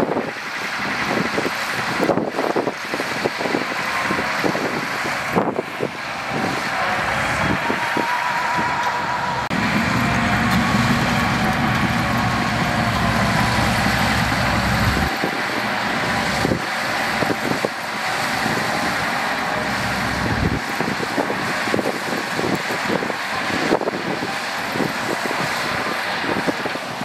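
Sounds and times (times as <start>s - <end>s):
diesel engine running: 0.0s - 27.0s
soil sliding out: 3.0s - 23.0s.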